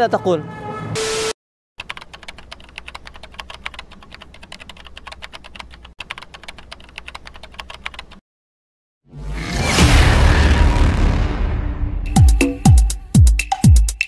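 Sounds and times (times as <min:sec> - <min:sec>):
keyboard typing clicks: 0:01.8 - 0:08.2.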